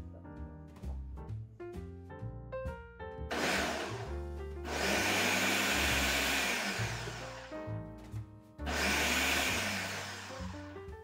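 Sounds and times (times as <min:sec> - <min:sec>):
food processor motor whirring: 0:03.3 - 0:07.6, 0:08.7 - 0:10.8.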